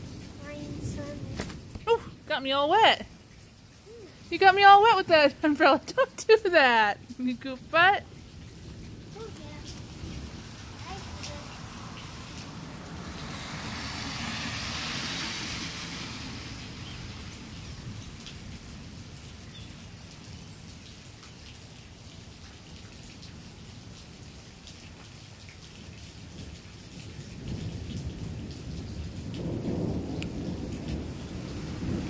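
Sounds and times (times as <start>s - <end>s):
thunder rumbling: 0.0s - 3.1s, 4.2s - 19.0s, 26.4s - 32.0s
steady rain falling: 0.0s - 32.0s.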